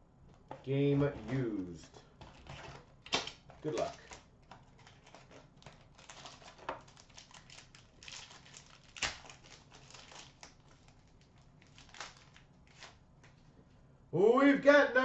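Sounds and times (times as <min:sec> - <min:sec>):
foil wrapper crinkling and tearing: 0:03.6 - 0:13.0.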